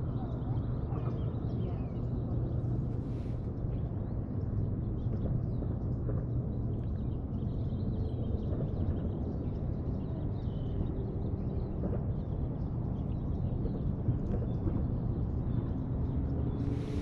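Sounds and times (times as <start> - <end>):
low rumble: 16.3 - 17.0.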